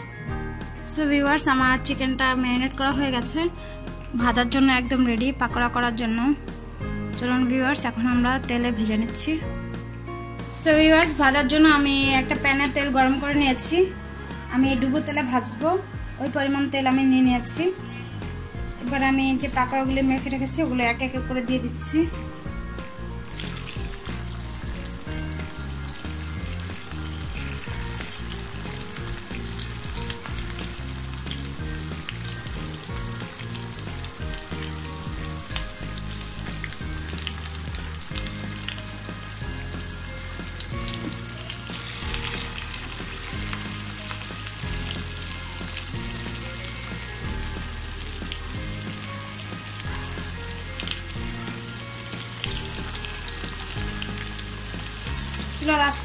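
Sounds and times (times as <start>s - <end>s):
food deep-frying in hot oil: 22.4s - 56.0s.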